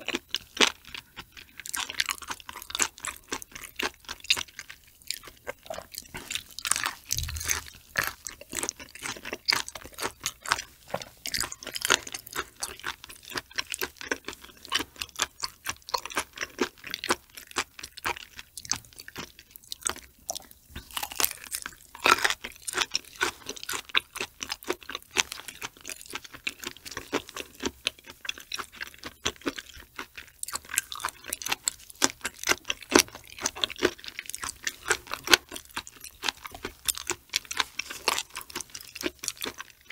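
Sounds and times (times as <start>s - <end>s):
roe crunching and popping: 0.0s - 12.9s
wet chewing: 0.0s - 39.9s.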